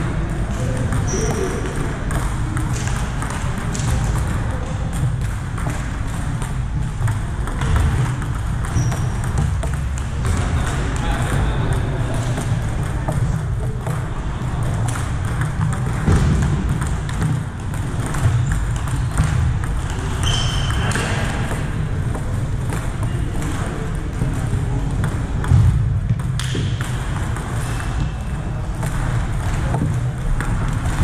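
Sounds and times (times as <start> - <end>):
ball clicks from neighbouring tables: 0.0 - 31.0
table tennis ball clicking: 0.3 - 23.7.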